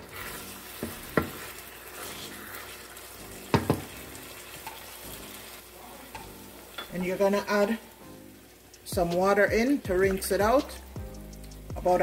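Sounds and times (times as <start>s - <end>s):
wooden spoon stirring: 0.0s - 7.9s
chicken sizzling in a pot: 0.0s - 12.0s
spoon knocking against pot: 3.5s - 3.9s.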